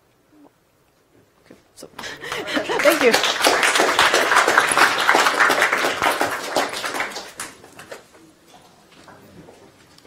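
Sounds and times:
audience applause: 0:02.0 - 0:08.1.

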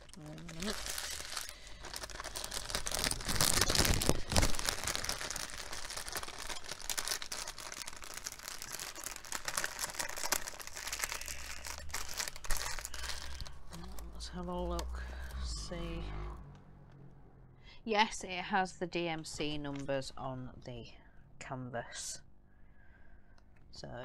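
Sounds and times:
plastic packaging crinkling: 0:00.0 - 0:15.4.

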